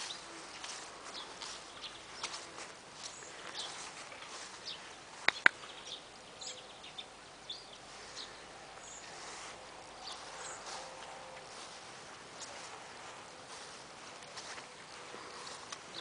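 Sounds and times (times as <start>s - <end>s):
sharp clicks: 5.2s - 5.7s.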